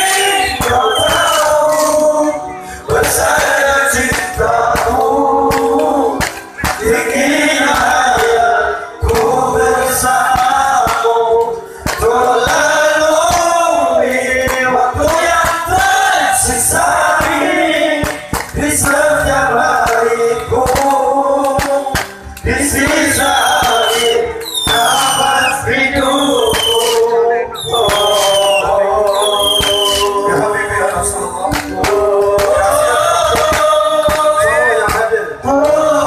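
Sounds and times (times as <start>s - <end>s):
man singing through loud pa: 0.0s - 36.0s
voices singing along: 0.0s - 36.0s.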